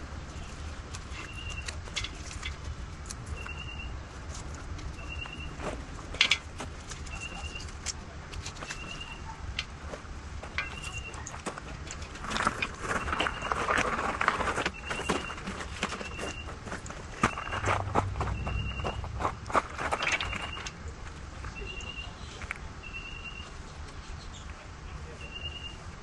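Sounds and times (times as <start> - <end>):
rustling and clatter: 0.0 - 3.5, 4.2 - 21.6
bird calling: 8.7 - 9.4, 17.2 - 20.8.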